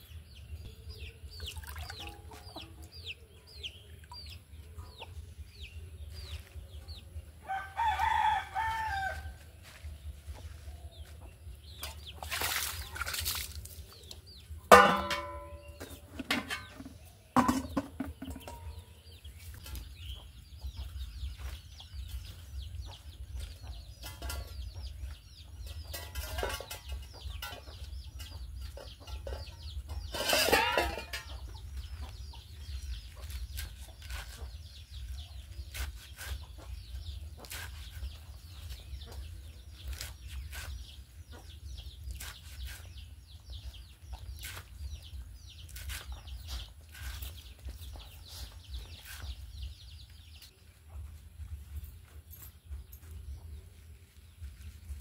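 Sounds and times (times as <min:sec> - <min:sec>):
chickens clucking: 0:01.9 - 0:07.3, 0:14.3 - 0:42.0
leaves being sliced: 0:33.2 - 0:34.4, 0:35.6 - 0:36.4, 0:37.4 - 0:38.0, 0:39.9 - 0:40.8.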